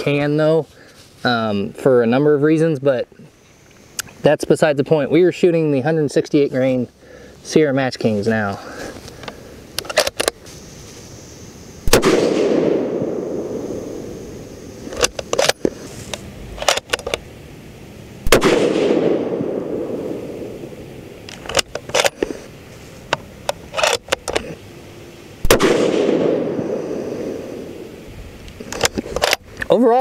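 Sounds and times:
rifle shots echoing: 11.9s - 14.2s, 18.2s - 20.7s, 25.4s - 27.8s
rifle bolt metallic clicks: 14.9s - 17.2s, 28.6s - 29.4s.

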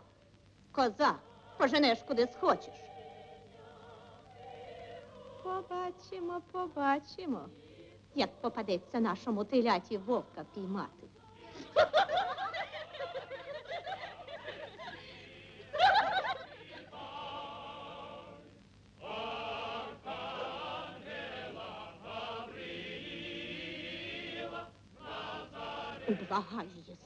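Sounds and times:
choir singing slow song: 0.9s - 27.0s
woman laughing: 11.5s - 16.9s.

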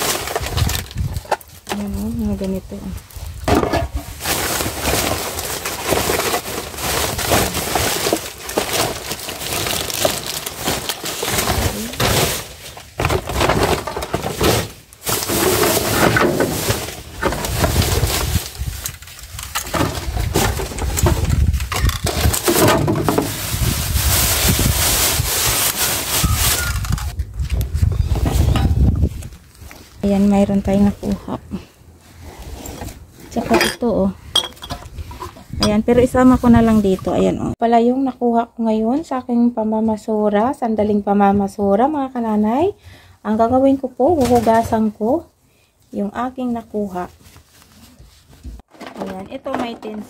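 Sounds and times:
plastic and paper bags rustling: 0.0s - 31.6s, 34.8s - 37.6s.

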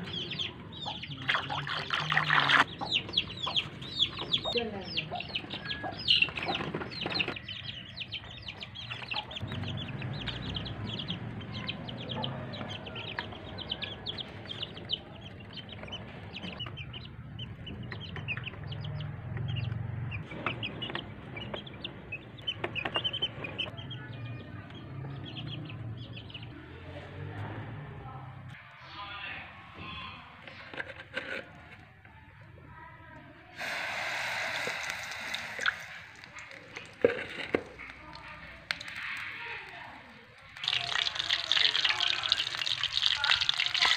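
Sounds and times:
chickens clucking: 0.0s - 24.4s.

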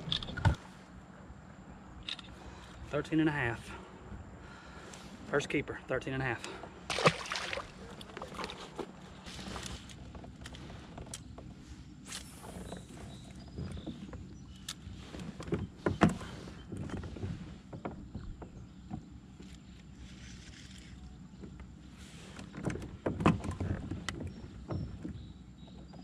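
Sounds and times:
fishing gear clicks and knocks: 6.4s - 17.1s.

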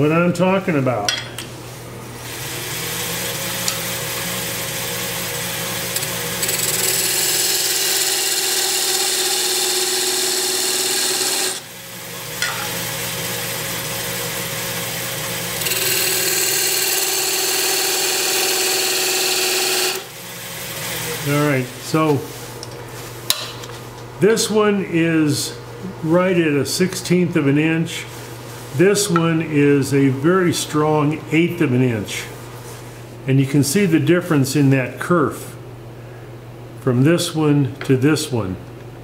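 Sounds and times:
lathe hum: 2.2s - 22.3s.

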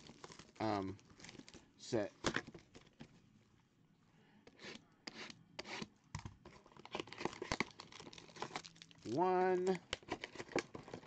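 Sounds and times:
plastic wrap tearing: 0.0s - 1.6s, 6.8s - 11.0s.

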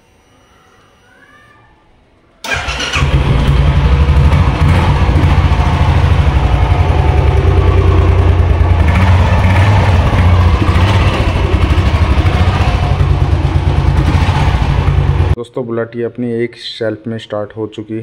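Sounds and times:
motorcycle engine idling: 2.5s - 15.4s.

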